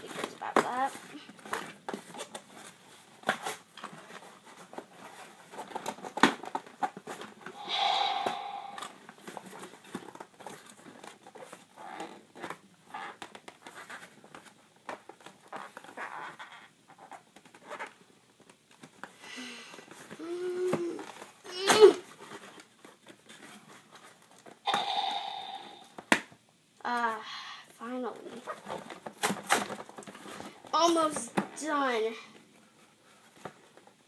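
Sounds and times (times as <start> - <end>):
sharp knock: 24.7 - 26.2.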